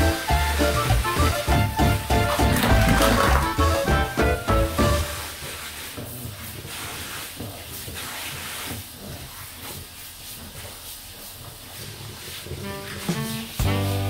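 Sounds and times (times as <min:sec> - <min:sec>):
background music: 0:00.0 - 0:05.2, 0:13.6 - 0:14.0
shower head spraying water: 0:00.0 - 0:14.0.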